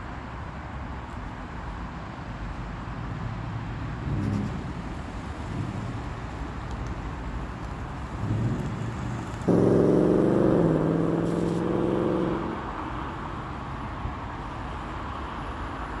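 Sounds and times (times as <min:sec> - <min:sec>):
low traffic rumble: 0:00.0 - 0:16.0
car engine running: 0:04.0 - 0:12.6.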